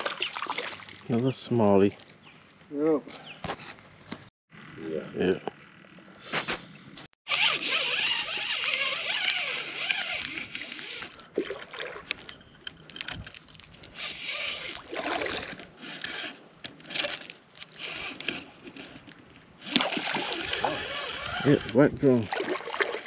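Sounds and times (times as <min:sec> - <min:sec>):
water sloshing: 0:00.0 - 0:02.7, 0:07.5 - 0:16.4, 0:17.0 - 0:23.0
spinning reel cranking: 0:07.3 - 0:11.1, 0:20.2 - 0:21.8.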